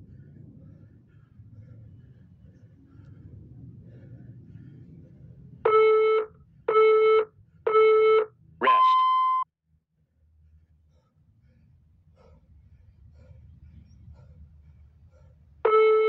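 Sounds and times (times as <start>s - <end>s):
long high-pitched beep: 5.7s - 9.5s.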